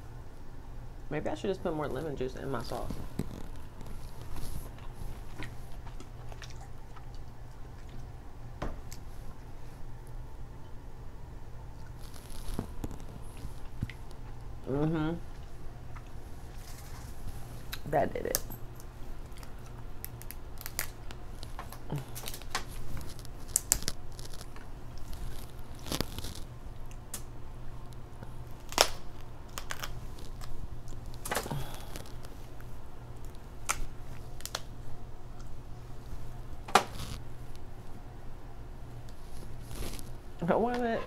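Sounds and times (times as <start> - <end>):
crab shells cracking: 17.7 - 27.3, 27.9 - 32.3, 33.1 - 34.7.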